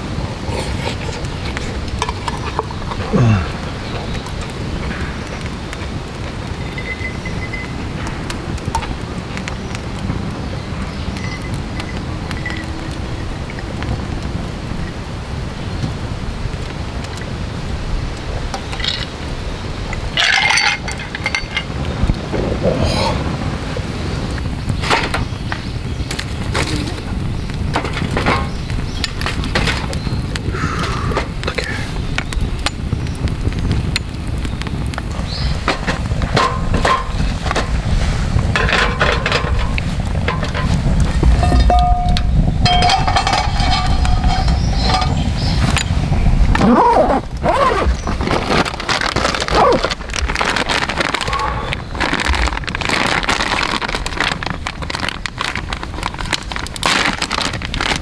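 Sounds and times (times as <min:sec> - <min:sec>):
campfire crackling and popping: 0:00.0 - 0:58.0
wind rumble on microphone: 0:00.0 - 0:58.0
frying pan clinking on grate: 0:41.4 - 0:45.9.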